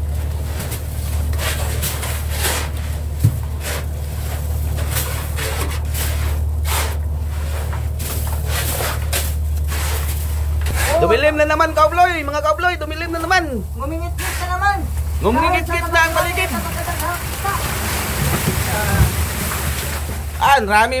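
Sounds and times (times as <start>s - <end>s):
low machine hum: 0.0s - 21.0s
tool scraping fish and ice: 0.3s - 11.2s, 14.1s - 15.3s.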